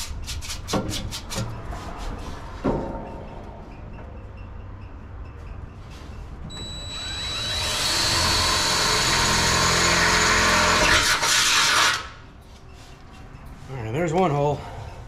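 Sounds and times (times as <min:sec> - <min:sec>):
drill motor whine: 0:06.5 - 0:12.0
drill bit cutting metal: 0:06.6 - 0:12.0.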